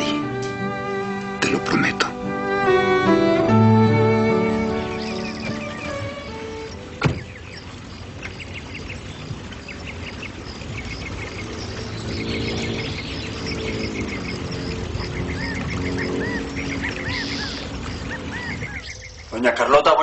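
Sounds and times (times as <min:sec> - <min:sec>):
small birds chirping: 0:04.2 - 0:20.0
ducks quacking: 0:04.4 - 0:20.0
truck door slamming: 0:06.8 - 0:07.6.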